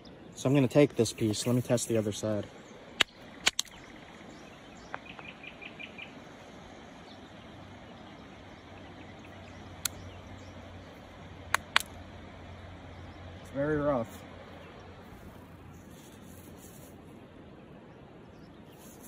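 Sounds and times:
bird chirps: 1.2 - 11.0
stone striking flint: 11.5 - 12.0.

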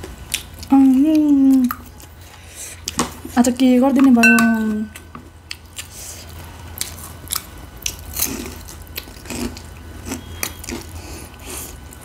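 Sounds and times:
crunching and chewing snack: 5.4 - 12.0.

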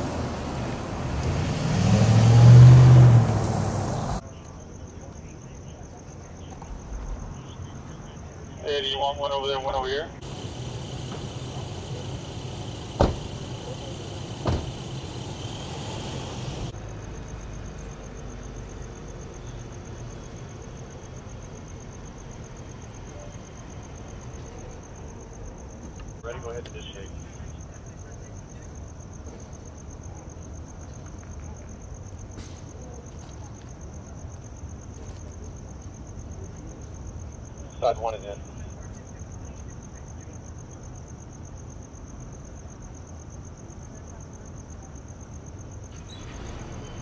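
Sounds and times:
emergency vehicles idling: 0.0 - 4.2, 7.4 - 30.8, 45.4 - 47.0
truck engine idling: 0.0 - 4.2, 10.1 - 16.8
cricket chirping: 0.0 - 47.0
sharp bangs: 10.2 - 16.7.

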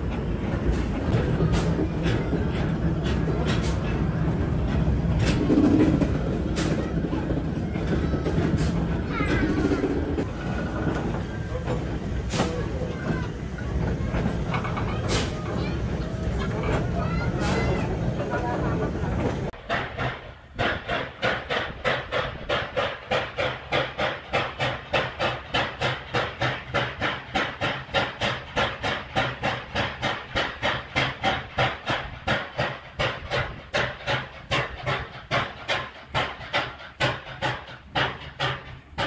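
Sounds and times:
steam locomotive puffing: 0.0 - 18.2, 19.3 - 39.0.

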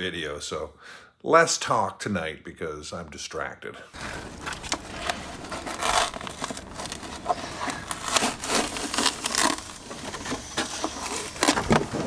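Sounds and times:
carpet being torn off by hand: 5.5 - 9.8.

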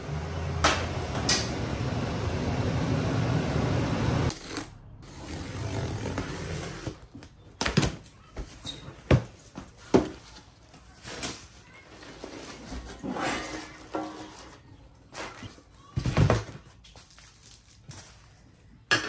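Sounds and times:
truck engine rumbling: 0.0 - 5.2.

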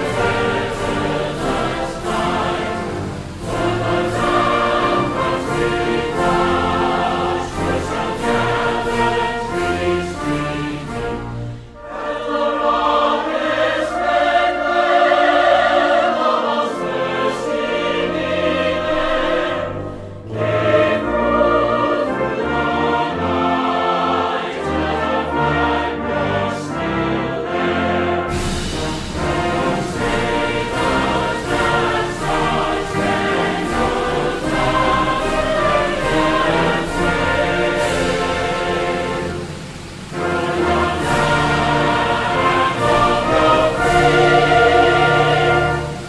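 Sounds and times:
choir with orchestra: 0.0 - 46.0.

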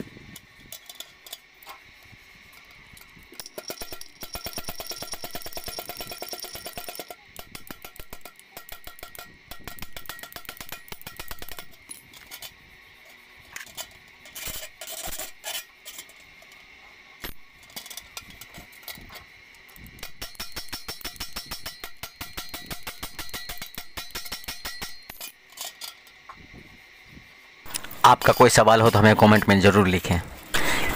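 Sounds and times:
hammer striking metal bucket: 3.4 - 11.8, 20.0 - 25.2.

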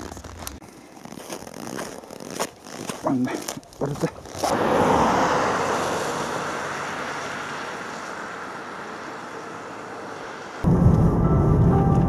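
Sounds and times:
car driving away: 4.4 - 12.0.

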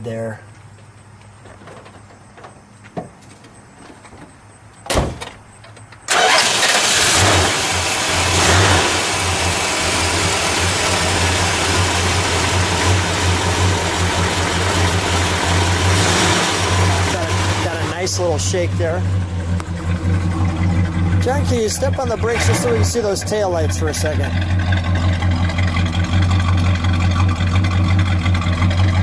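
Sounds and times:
car engine starting and idling: 6.0 - 29.0.

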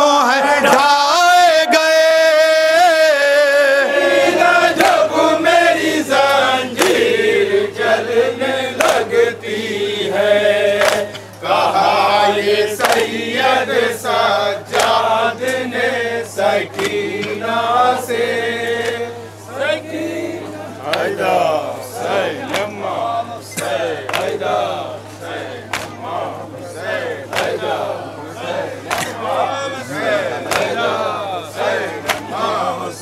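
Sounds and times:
man reciting into microphone: 0.0 - 3.9
men chanting in unison: 0.0 - 33.0.

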